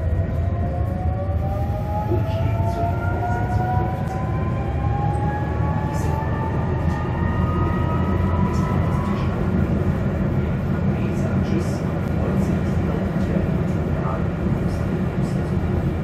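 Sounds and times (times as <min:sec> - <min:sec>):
tram drive whine: 0:00.0 - 0:16.0
tram running rumble: 0:00.0 - 0:16.0.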